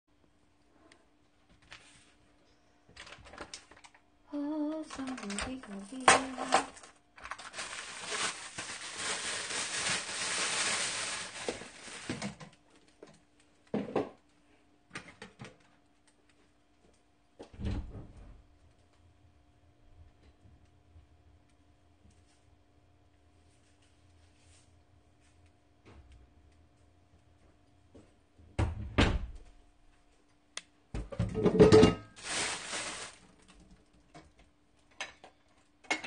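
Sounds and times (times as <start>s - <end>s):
person humming: 4.3s - 6.5s
plastic bag crinkling: 4.6s - 12.6s, 32.1s - 33.8s.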